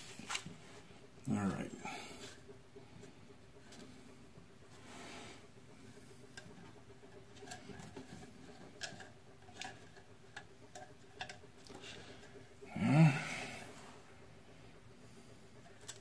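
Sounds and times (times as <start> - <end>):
person humming: 12.7 - 13.7.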